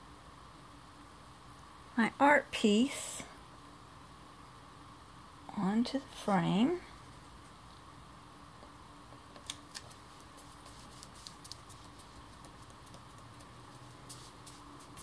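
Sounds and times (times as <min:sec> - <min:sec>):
fingers tapping cardstock: 0:09.2 - 0:13.9.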